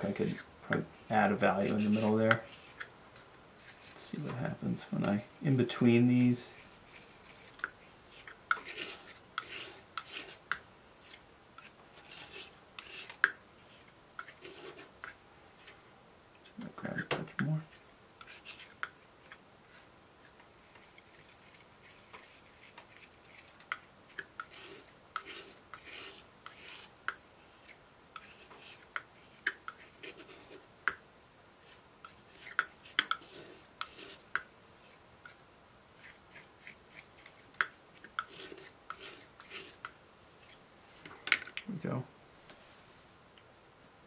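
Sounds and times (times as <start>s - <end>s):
palette knife scraping: 0.0s - 2.9s, 6.5s - 15.8s, 16.4s - 30.7s, 31.6s - 35.4s, 36.0s - 40.6s.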